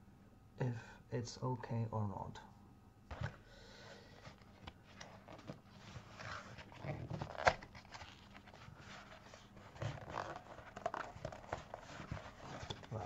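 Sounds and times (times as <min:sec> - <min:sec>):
paper rustling and scraping: 0:04.2 - 0:13.0
cardboard envelope torn open: 0:05.0 - 0:13.0.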